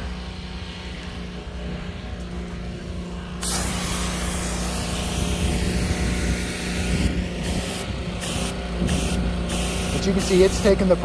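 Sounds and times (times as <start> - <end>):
pressure washer machine hum: 0.0 - 11.0
water spray hiss: 3.4 - 10.8.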